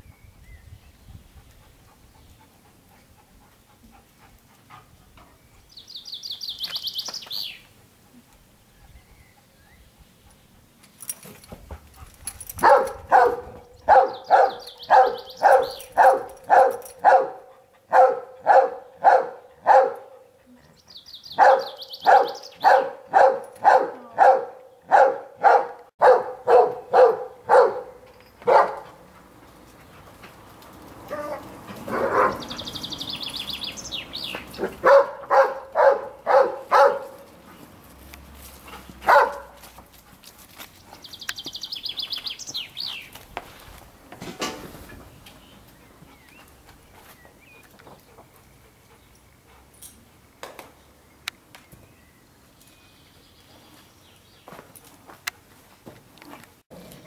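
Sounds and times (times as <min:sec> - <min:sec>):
birds chirping: 0:04.2 - 0:07.8, 0:08.4 - 0:39.6, 0:40.6 - 0:43.4, 0:44.9 - 0:54.8
dog barking: 0:12.6 - 0:20.2, 0:21.4 - 0:28.9, 0:31.1 - 0:32.6, 0:34.6 - 0:37.2, 0:39.0 - 0:39.6.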